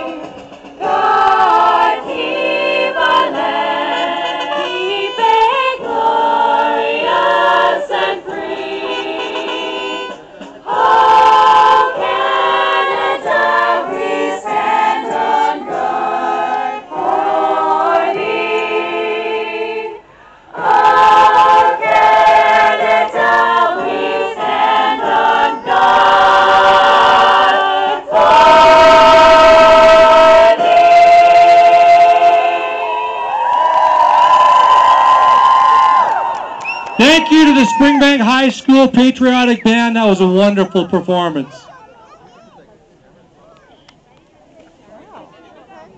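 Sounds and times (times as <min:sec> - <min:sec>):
school band playing: 0:00.0 - 0:07.3, 0:20.6 - 0:32.9, 0:37.0 - 0:41.5.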